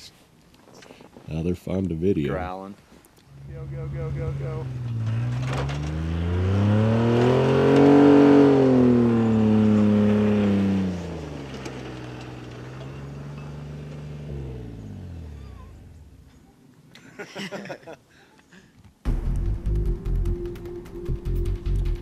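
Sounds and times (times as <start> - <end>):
truck engine revving: 3.3 - 16.2.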